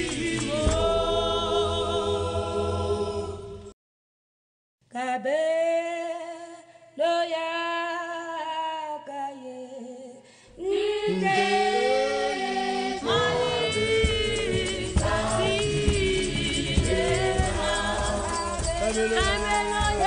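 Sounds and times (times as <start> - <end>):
lower voices singing: 0.0 - 3.7, 10.5 - 20.0
women's choir singing: 0.0 - 3.7, 10.6 - 20.0.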